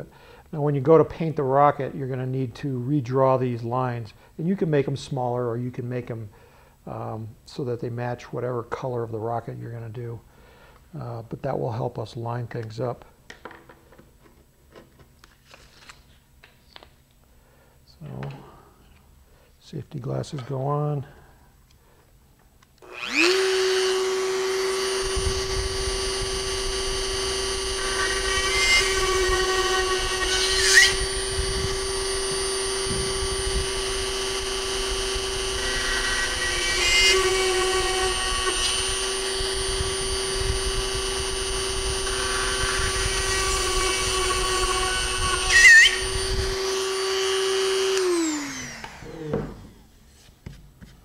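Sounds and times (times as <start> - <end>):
rotary tool high whine: 22.8 - 49.9
drill bit squeals: 22.9 - 49.3.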